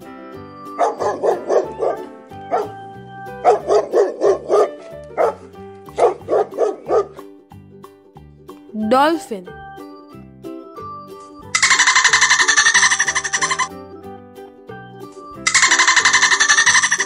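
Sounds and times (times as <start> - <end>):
background music: 0.0 - 17.0
dog yapping: 0.8 - 2.7, 3.4 - 5.4, 6.0 - 7.2, 11.6 - 13.7, 15.5 - 17.0.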